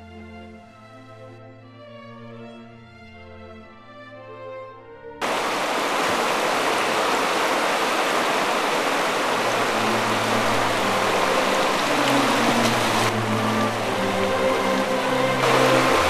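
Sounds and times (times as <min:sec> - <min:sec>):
music: 0:00.0 - 0:05.2, 0:09.4 - 0:16.0
whitewater rapids rushing: 0:05.2 - 0:16.0.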